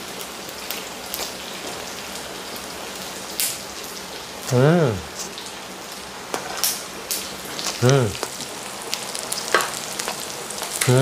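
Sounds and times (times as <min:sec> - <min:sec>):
meat sizzling on a grill pan: 0:00.0 - 0:11.0
person humming: 0:04.5 - 0:05.1, 0:07.8 - 0:08.2.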